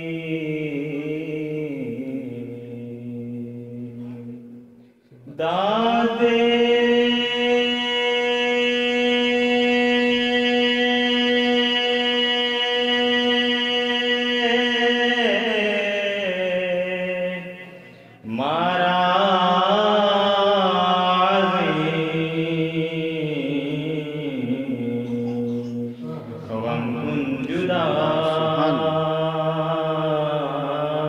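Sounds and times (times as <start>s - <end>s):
devotional chant with held notes: 0.0s - 31.0s.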